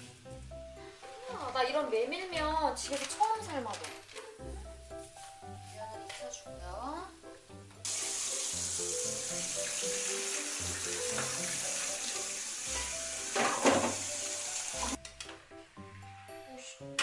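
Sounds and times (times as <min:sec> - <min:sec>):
water splash from pot: 0:07.9 - 0:15.0
tap running into strainer: 0:09.5 - 0:15.0.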